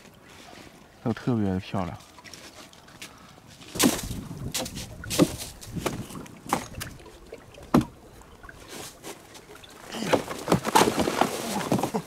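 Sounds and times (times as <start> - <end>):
ice crunching and splashing: 2.1 - 7.8, 8.6 - 12.0.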